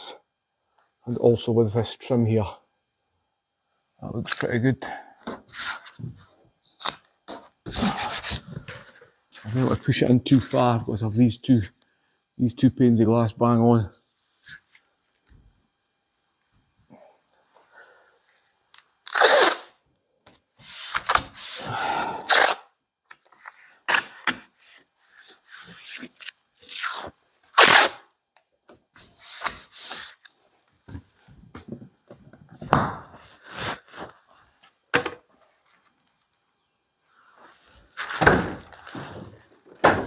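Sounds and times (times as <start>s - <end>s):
masking tape tearing: 18.7s - 19.8s, 20.8s - 21.6s, 22.2s - 24.5s, 25.2s - 28.1s.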